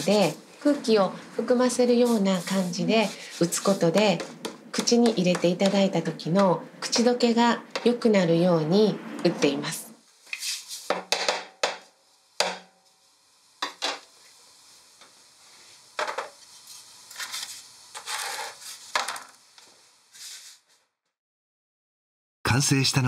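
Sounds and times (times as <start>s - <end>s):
sugar pieces scraping on tray: 17.1s - 19.3s.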